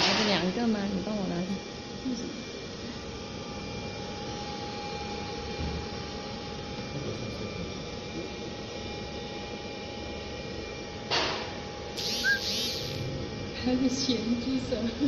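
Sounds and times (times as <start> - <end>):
thin constant whine: 0.0 - 15.0
production line machinery hum: 12.0 - 13.6.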